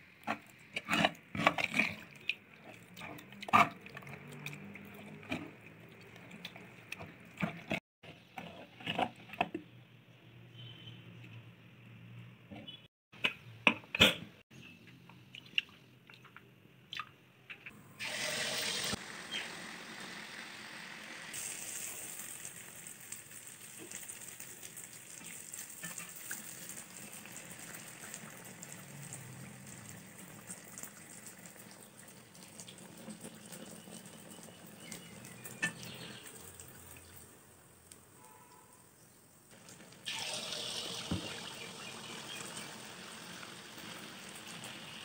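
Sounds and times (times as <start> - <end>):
batter sizzling in hot oil: 18.0 - 36.3, 39.5 - 45.0.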